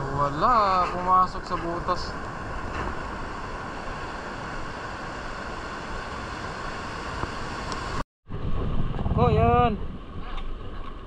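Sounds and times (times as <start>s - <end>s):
surf rushing: 0.0s - 10.2s
wind rumbling on microphone: 0.0s - 11.0s.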